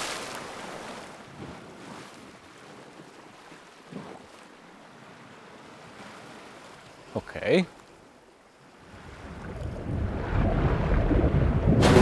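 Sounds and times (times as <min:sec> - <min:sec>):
sea water washing on rocks: 0:00.0 - 0:01.1
wind: 0:00.0 - 0:12.0.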